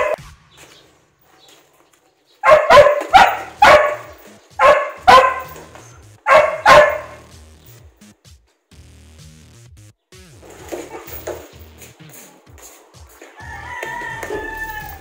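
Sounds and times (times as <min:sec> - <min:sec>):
dog barking: 0:00.0 - 0:00.2, 0:02.4 - 0:07.4, 0:10.7 - 0:11.4.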